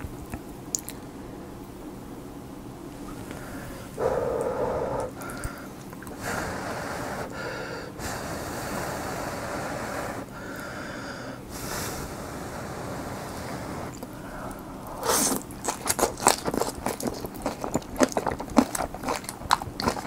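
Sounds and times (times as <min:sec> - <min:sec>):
slurping noodles: 0:15.0 - 0:20.0.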